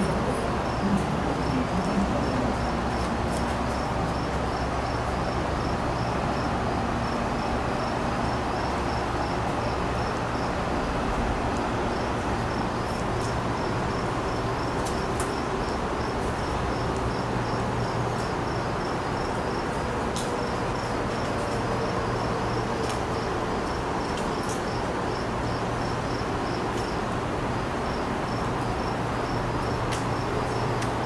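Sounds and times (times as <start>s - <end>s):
distant train rumble and hiss: 0.0s - 31.0s
insect chirping: 0.0s - 31.0s.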